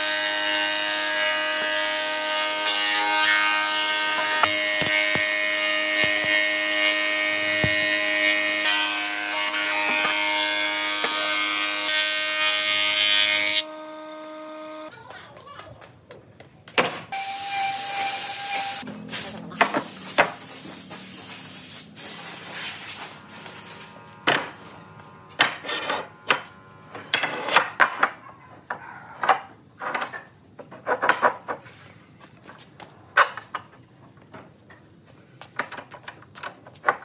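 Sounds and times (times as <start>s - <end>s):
steady hiss: 19.1s - 24.0s.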